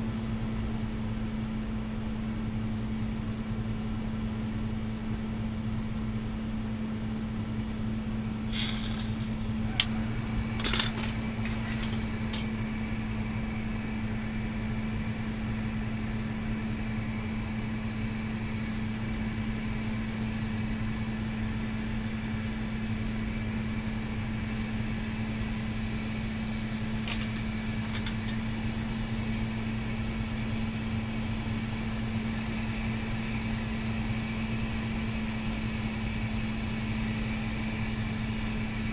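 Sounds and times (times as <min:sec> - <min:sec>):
low hum: 0:08.4 - 0:12.6
glass tools clicking: 0:08.5 - 0:09.9, 0:10.6 - 0:12.5.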